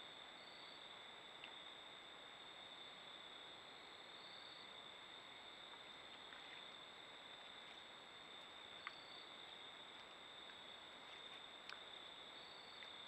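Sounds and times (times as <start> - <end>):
faint tick: 8.8 - 9.0, 11.6 - 11.8.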